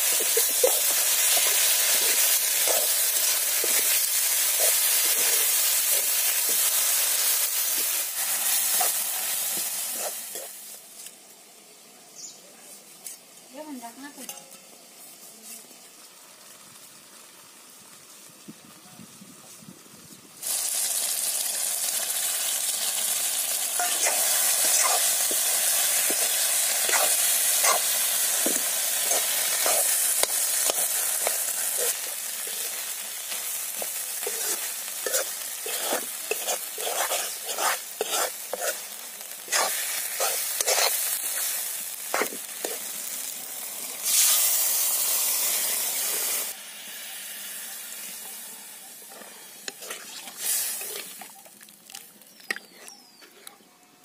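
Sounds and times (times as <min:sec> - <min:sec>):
food sizzling in a pan: 0:00.0 - 0:11.5, 0:12.2 - 0:19.2, 0:20.4 - 0:53.2
metal spoon scraping a pan: 0:00.1 - 0:06.8, 0:23.7 - 0:42.9, 0:49.1 - 0:51.3
loud hiss of water added: 0:43.9 - 0:46.7, 0:49.6 - 0:51.2.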